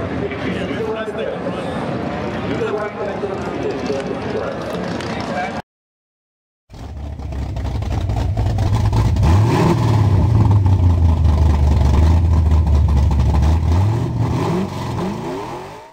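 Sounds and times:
car engine accelerating hard: 0:06.7 - 0:15.9.

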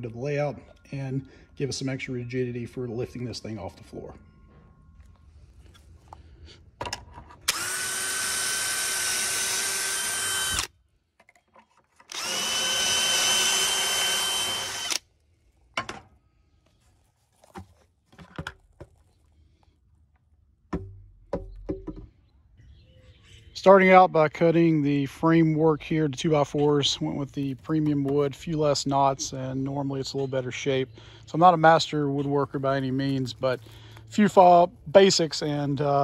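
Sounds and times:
drill whining: 0:07.4 - 0:10.8, 0:12.0 - 0:15.1
wooden board knocking and clattering: 0:20.7 - 0:22.2.

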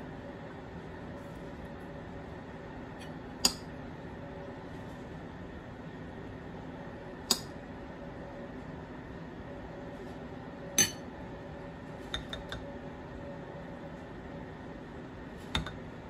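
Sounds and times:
steady low hum: 0:00.0 - 0:16.0
metal spoon clinking on dishes: 0:10.8 - 0:11.1.

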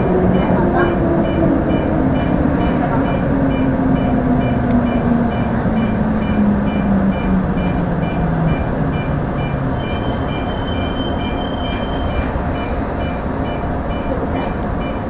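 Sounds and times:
steady high tone: 0:00.0 - 0:15.0
train wheels rumbling on rail: 0:00.0 - 0:15.0
high electronic beeps: 0:00.3 - 0:15.0.

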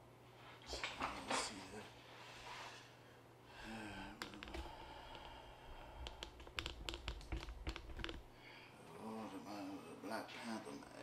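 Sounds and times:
objects handled on a desk: 0:04.2 - 0:05.3, 0:06.0 - 0:08.3
sharp clicks and taps: 0:04.2 - 0:05.3, 0:06.0 - 0:08.3.

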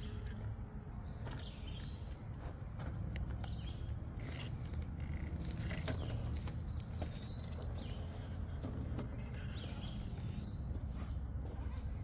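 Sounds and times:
toy car tyres crackling over twigs: 0:03.1 - 0:10.5.

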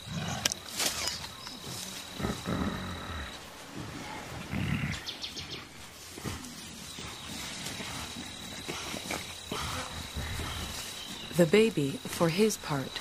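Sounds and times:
high insect tone: 0:00.0 - 0:04.0, 0:04.9 - 0:13.0
gorillas grunting: 0:01.6 - 0:11.4.

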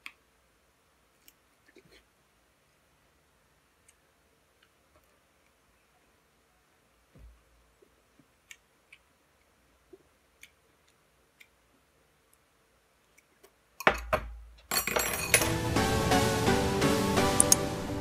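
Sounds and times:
loud music: 0:15.4 - 0:18.0.

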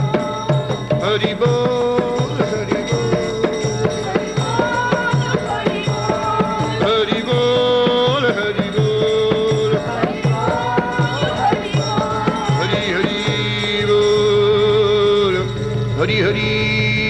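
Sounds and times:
hand-drum beat: 0:00.0 - 0:17.0.

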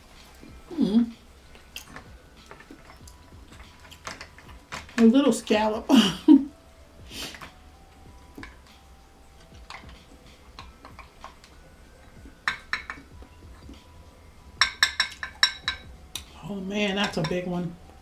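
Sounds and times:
shells and utensil clinking dishes: 0:01.5 - 0:05.2, 0:09.4 - 0:13.8, 0:14.6 - 0:17.7.

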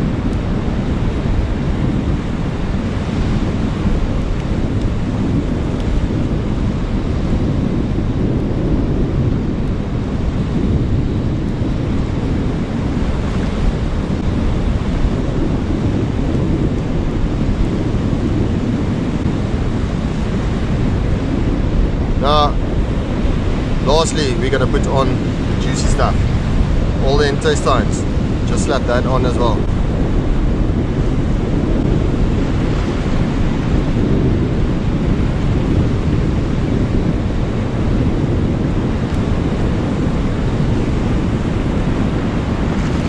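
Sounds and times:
wind rumble on microphone: 0:00.0 - 0:43.0
surf washing onto rocks: 0:21.8 - 0:29.8.

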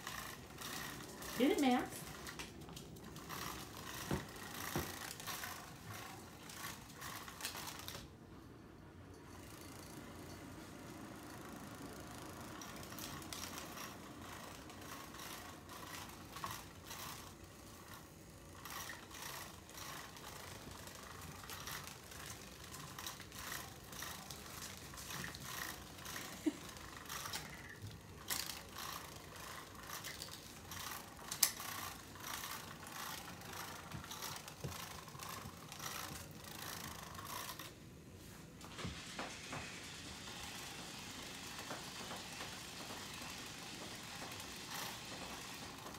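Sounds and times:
plastic cat toy rattling: 0:00.0 - 0:08.1, 0:12.2 - 0:37.8
small paws on tile floor: 0:18.6 - 0:45.9.

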